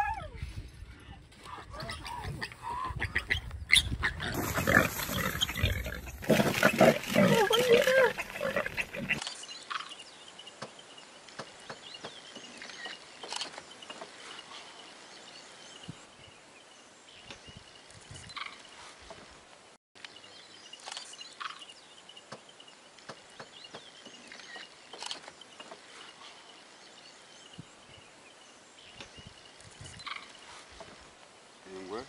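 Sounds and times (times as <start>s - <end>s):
piglet squealing in distress: 3.0s - 9.2s.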